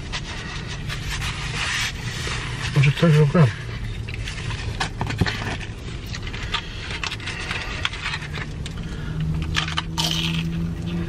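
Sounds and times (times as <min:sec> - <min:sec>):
low steady hum: 0:00.0 - 0:11.0
low steady rumble: 0:00.0 - 0:11.0
food packaging clicks and scrapes: 0:04.0 - 0:10.6.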